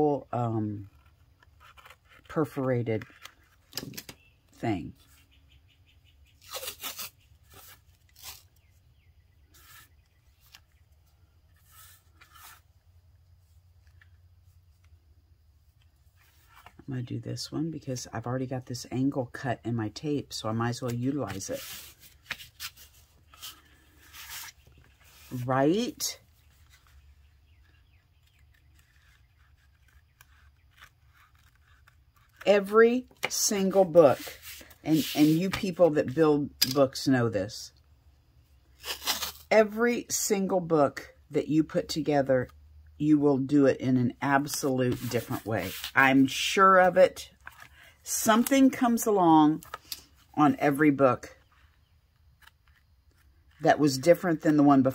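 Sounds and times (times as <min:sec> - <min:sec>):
tape ripping and rustling: 0:06.4 - 0:08.7, 0:38.8 - 0:39.5.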